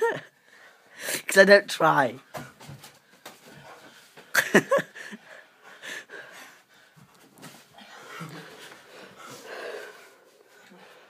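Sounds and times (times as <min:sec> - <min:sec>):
breathing: 0:00.4 - 0:01.3, 0:05.0 - 0:07.1, 0:07.8 - 0:11.0.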